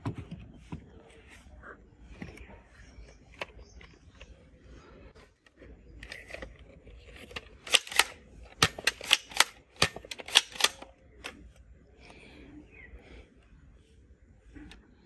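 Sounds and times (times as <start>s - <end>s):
toy blaster plastic clicks: 7.3s - 11.4s.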